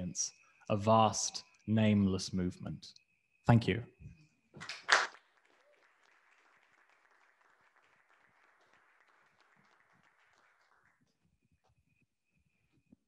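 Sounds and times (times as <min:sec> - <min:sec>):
faint audience applause: 0:04.6 - 0:11.2.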